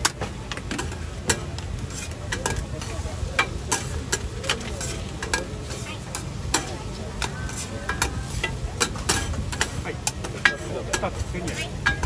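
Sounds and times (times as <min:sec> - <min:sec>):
food sizzling: 0:00.0 - 0:12.0
metal spatulas scraping griddle: 0:00.0 - 0:12.0.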